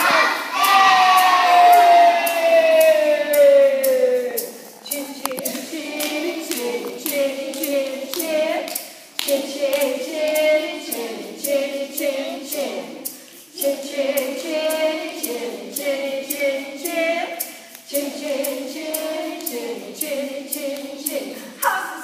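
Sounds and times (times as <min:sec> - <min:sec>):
children singing: 0:00.0 - 0:22.0
rhythmic clapping: 0:00.0 - 0:22.0
woman singing: 0:04.8 - 0:13.0.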